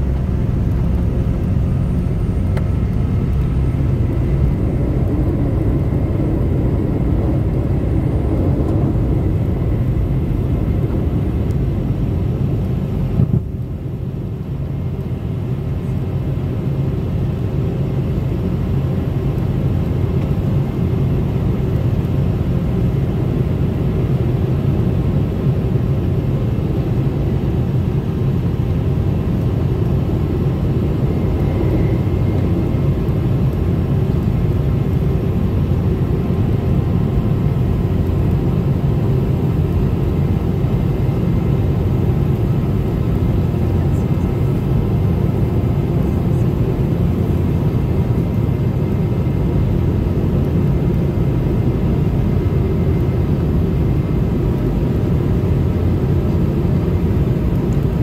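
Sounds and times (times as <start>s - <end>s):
faint whine tones: 0.0s - 15.2s, 28.8s - 57.9s
jet engine drone: 0.0s - 58.0s.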